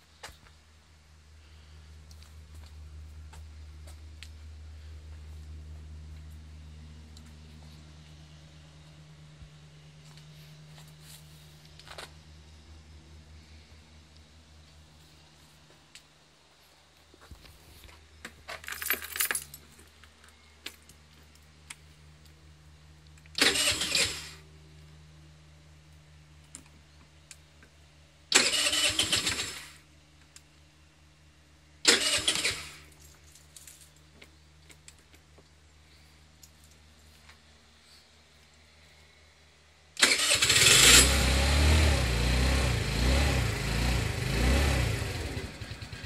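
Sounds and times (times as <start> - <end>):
keys rattling: 18.5 - 19.9
scooter starter cranking: 23.4 - 24.3, 28.3 - 29.7, 31.9 - 32.8, 40.0 - 41.3.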